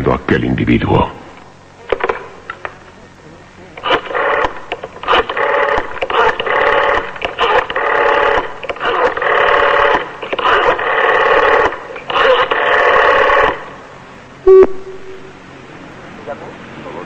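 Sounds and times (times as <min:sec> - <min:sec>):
rotary dial whirring: 0:03.7 - 0:13.8.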